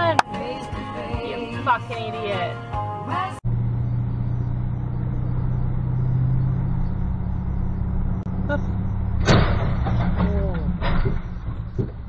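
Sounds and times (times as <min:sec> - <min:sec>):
car engine and road hum: 0:03.2 - 0:12.0.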